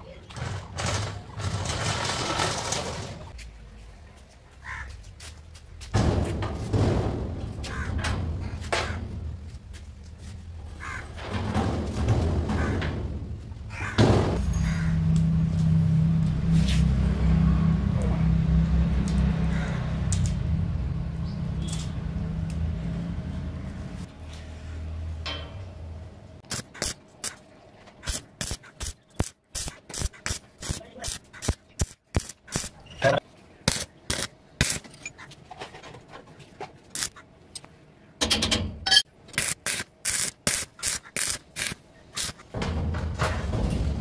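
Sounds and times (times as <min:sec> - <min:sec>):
welding arc crackling: 0:26.4 - 0:27.4, 0:28.0 - 0:32.8, 0:33.7 - 0:34.8, 0:37.0 - 0:37.2, 0:39.4 - 0:42.5.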